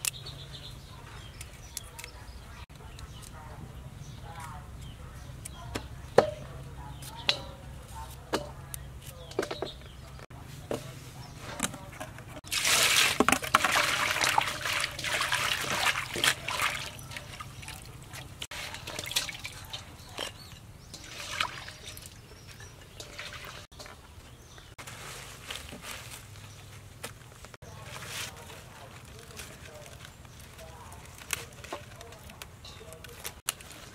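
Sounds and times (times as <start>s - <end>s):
hands splashing greens in water: 12.4s - 20.2s, 20.9s - 22.2s.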